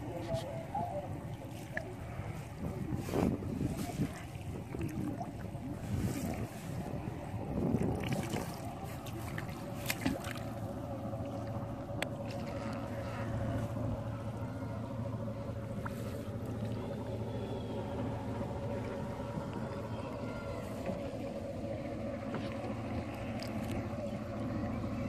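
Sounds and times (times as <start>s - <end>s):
low engine hum: 0.0s - 25.0s
wet net being hauled: 1.5s - 10.7s
water splashing and dripping: 7.6s - 12.9s.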